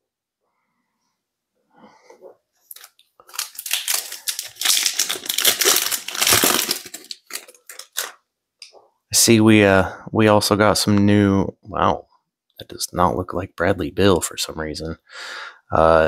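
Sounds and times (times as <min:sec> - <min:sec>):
plastic wrapper crinkling: 0:02.6 - 0:08.2
wrapper tearing: 0:02.7 - 0:08.2.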